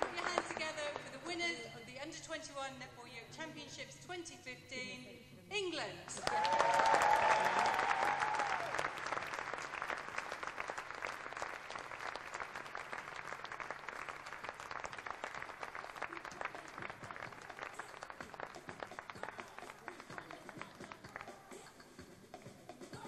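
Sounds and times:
audience applause: 0.0 - 0.8, 6.2 - 21.5.

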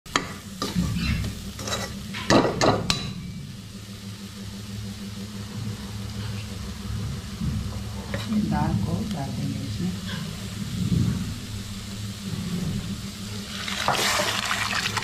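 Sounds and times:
food sizzling in oil: 0.1 - 15.0
low hum: 0.4 - 15.0
metal spoon scraping a pan: 0.6 - 2.3, 10.0 - 10.4.

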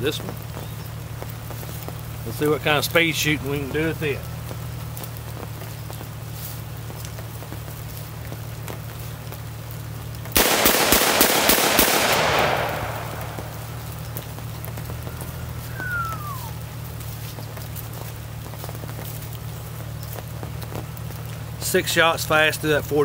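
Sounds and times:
gunshot echo: 10.4 - 14.1
revolver shots: 10.4 - 14.4.

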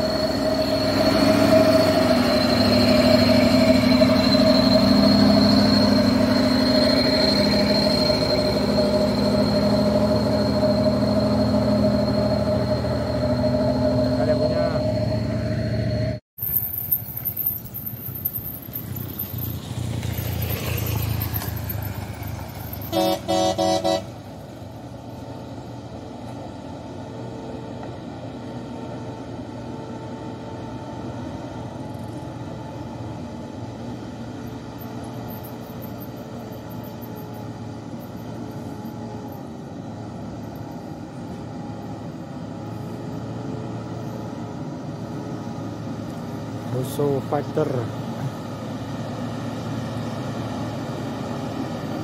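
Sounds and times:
truck engine and tyres on gravel: 0.0 - 52.0
truck horn blasts: 22.9 - 24.2.

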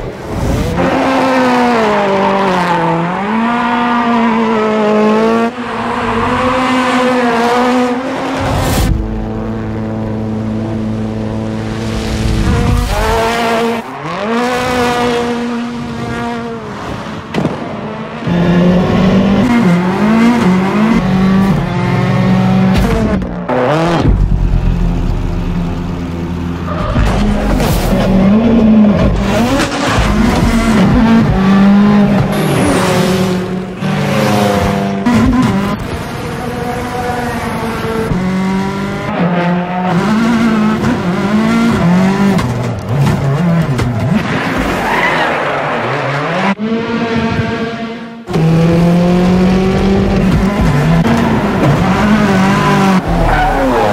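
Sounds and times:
car engine revving: 0.1 - 53.9
car engine revving hard: 27.1 - 44.2, 45.8 - 53.9.

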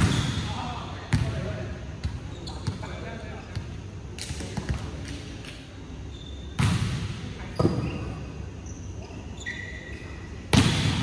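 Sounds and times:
volleyball smacks echoing: 10.5 - 11.0.

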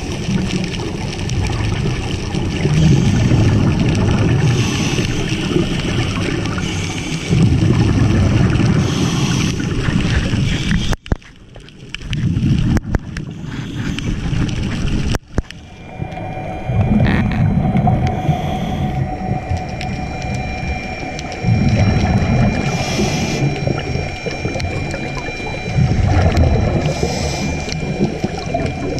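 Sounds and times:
gurgling exhaled bubbles: 0.0 - 28.9.

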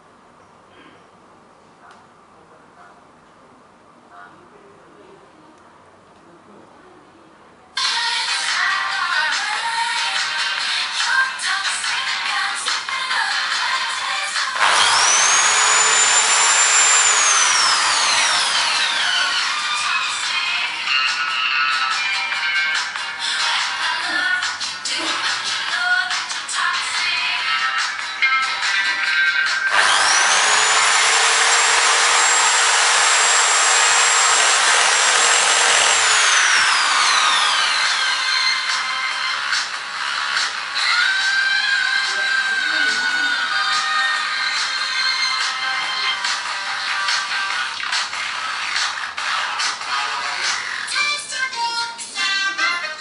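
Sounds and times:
power drill grinding into glass: 14.6 - 20.0, 29.7 - 38.8.

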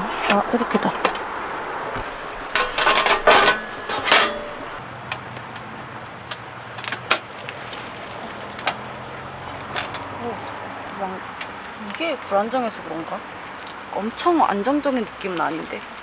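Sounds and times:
metal plates clattering: 2.5 - 4.8.

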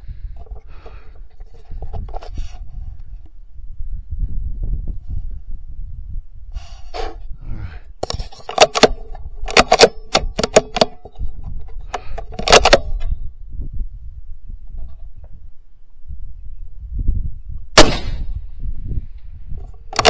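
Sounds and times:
rifle metallic clicks and knocks: 8.0 - 13.2, 19.6 - 20.0.

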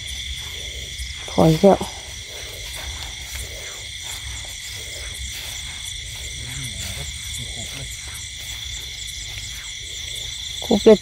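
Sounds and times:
low rumble: 0.0 - 10.6
crickets trilling: 0.0 - 11.0
frogs calling: 0.0 - 11.0.

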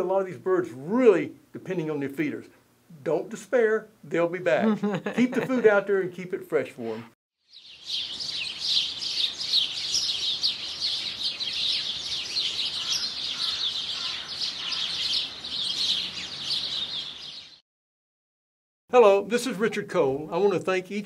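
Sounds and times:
songbirds chirping: 7.4 - 17.6.

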